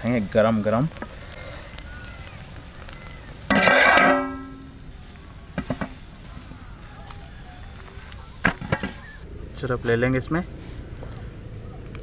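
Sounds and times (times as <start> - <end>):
crickets chirring: 0.0 - 12.0
loud ringing clang: 3.5 - 4.8.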